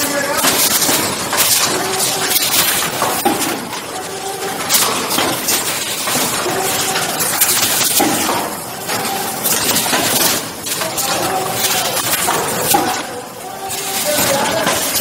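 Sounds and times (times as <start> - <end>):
factory machine running: 0.0 - 15.0.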